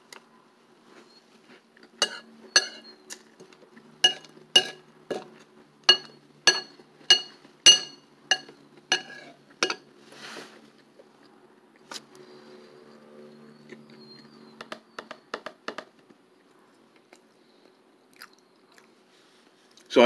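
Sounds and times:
metal spoon clinking in ceramic bowl: 2.0 - 3.0, 4.0 - 5.3, 5.9 - 9.9.

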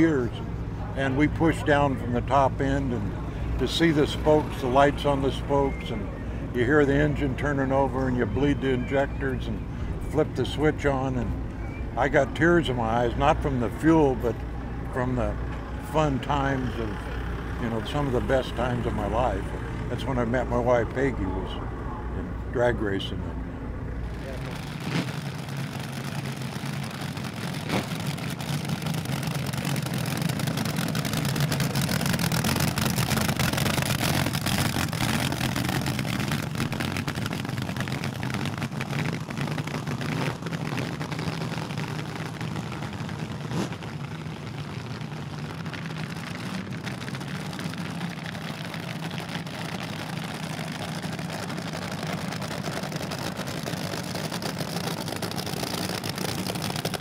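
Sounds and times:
dragster engines rumbling at idle: 0.0 - 57.0.

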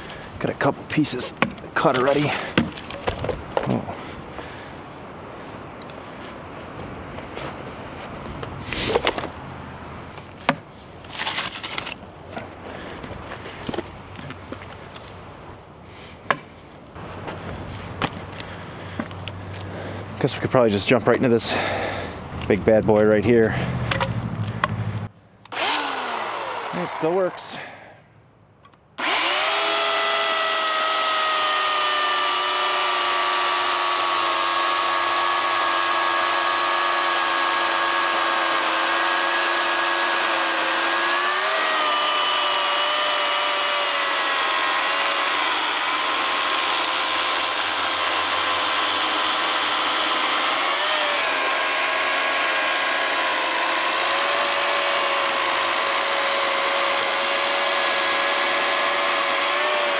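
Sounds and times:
electric chainsaw cutting log: 0.0 - 4.6, 8.7 - 9.4, 10.2 - 12.0, 25.5 - 27.7, 29.0 - 59.9.

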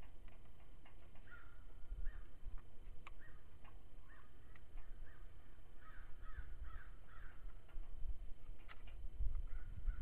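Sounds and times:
bird calling: 1.1 - 2.4, 3.1 - 7.7.

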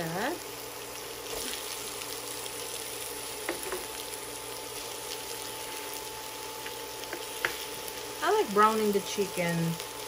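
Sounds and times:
chicken sizzling in hot oil: 0.0 - 10.0.

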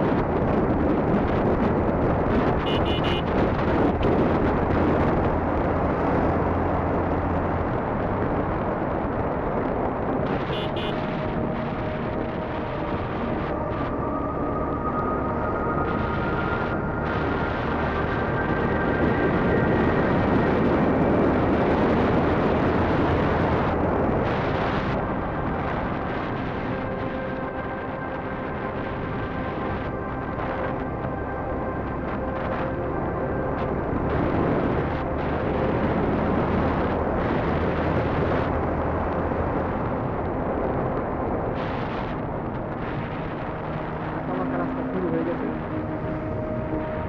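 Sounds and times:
motorcycle engine rumble: 0.0 - 27.1
wind rushing over microphone: 0.0 - 47.0.

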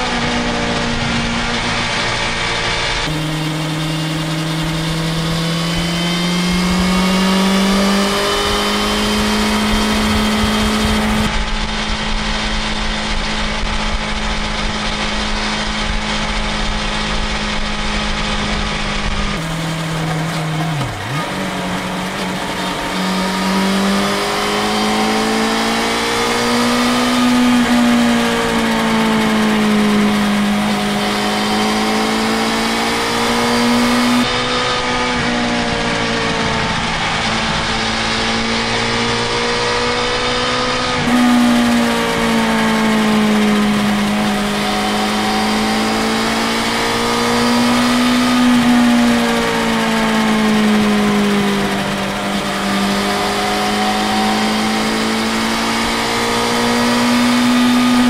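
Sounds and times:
wind noise: 0.0 - 32.9
motorcycle engine at speed: 0.0 - 58.0.

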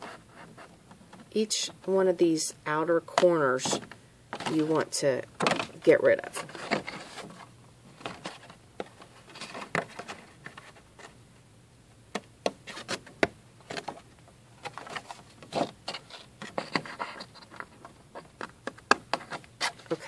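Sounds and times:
stiff paper rustling and crackling: 5.5 - 11.2, 12.6 - 20.0.

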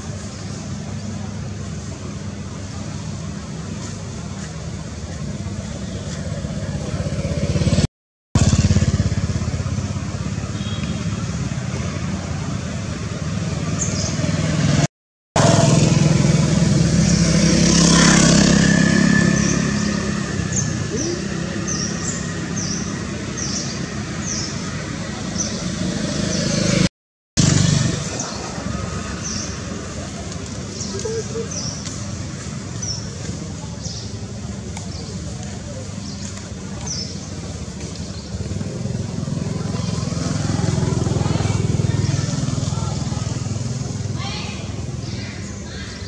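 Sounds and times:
motor traffic rumble: 0.0 - 46.0.

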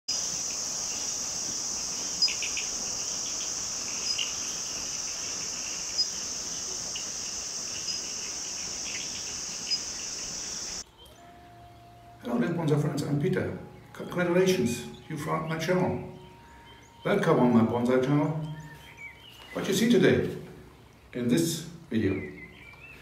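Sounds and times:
short insect chirps: 0.1 - 11.3
insects chorus: 0.1 - 11.4.

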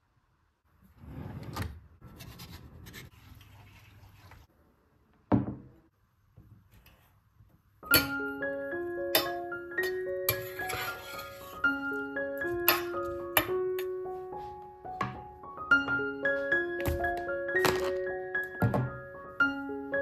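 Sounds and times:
light music with ringing notes: 7.8 - 20.0.

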